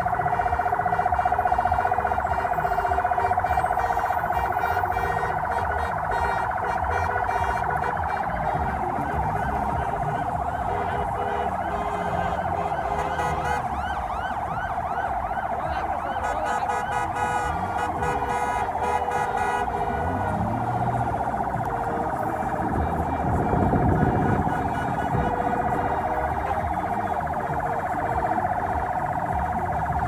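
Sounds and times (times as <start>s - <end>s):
siren yelps: 0.0s - 30.0s
warbling siren: 0.0s - 30.0s.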